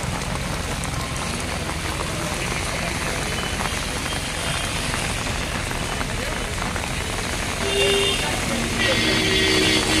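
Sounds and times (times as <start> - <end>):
rain falling on water: 0.0 - 10.0.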